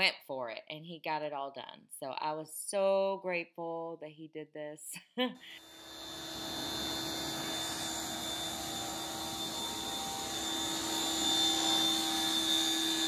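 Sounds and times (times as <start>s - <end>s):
pressure washer motor whine: 5.6s - 13.0s.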